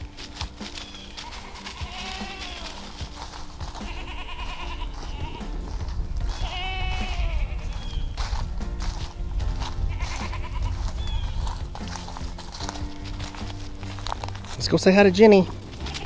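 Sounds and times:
goats bleating: 0.9 - 8.1, 9.9 - 11.3, 14.9 - 16.0.

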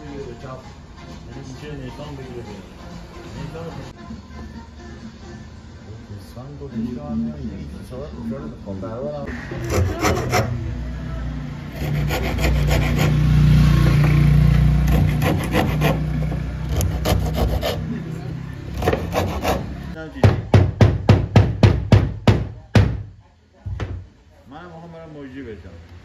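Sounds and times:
hand saw cutting wood: 9.5 - 10.6, 11.7 - 13.2, 14.8 - 17.9, 18.7 - 19.8.

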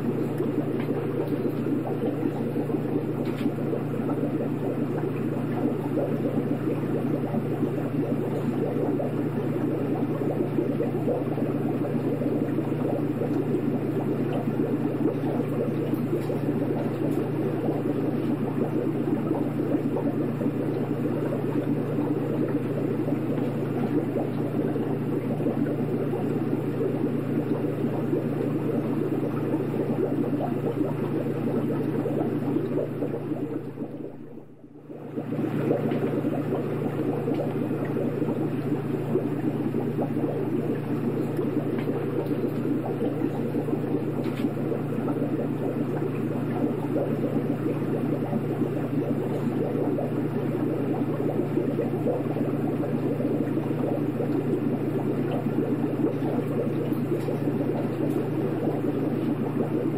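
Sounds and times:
aquarium filter hum: 0.0 - 59.9
water bubbling: 0.0 - 59.9.

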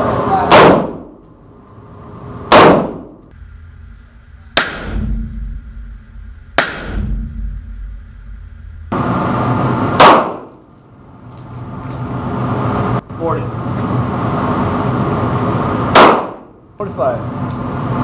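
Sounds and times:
muffled gunshots: 0.4 - 1.2, 2.5 - 3.2, 4.5 - 5.1, 6.6 - 7.2, 9.9 - 10.5, 15.9 - 16.5
loud handgun shot: 0.5 - 1.2, 2.5 - 3.2, 4.6 - 5.0, 6.6 - 7.1, 9.9 - 10.6, 15.9 - 16.5
loud rifle shot: 0.5 - 1.2, 2.5 - 3.2, 4.6 - 5.1, 6.6 - 7.2, 9.9 - 10.6, 15.9 - 16.5.

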